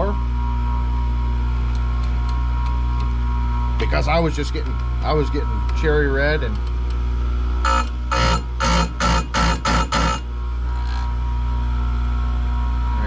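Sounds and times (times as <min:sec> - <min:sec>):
grinder motor humming: 0:01.8 - 0:11.4
grinding wheel on chain cutter: 0:07.6 - 0:11.2.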